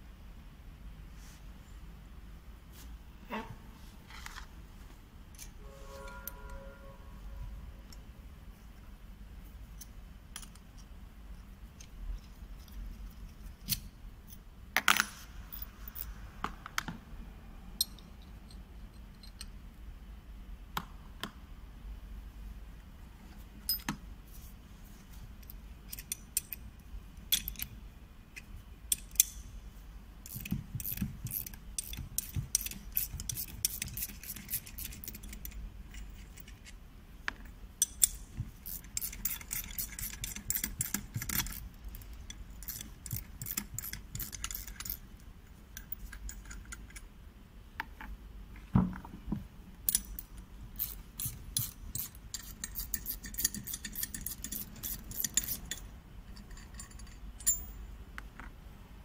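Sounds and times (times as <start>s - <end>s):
metal clicks and clinks: 23.6s - 24.0s, 27.3s - 27.7s, 45.8s - 47.1s, 49.9s - 57.8s.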